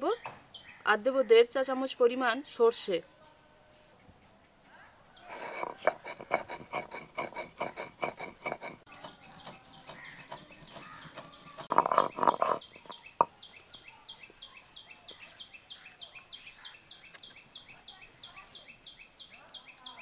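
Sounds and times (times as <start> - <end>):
seeds being ground into paste: 5.2 - 13.2
bird chirping: 7.8 - 20.0.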